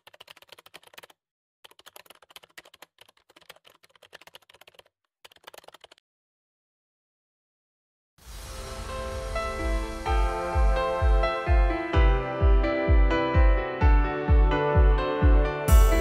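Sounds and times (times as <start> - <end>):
keyboard typing clicks: 0.0 - 6.0.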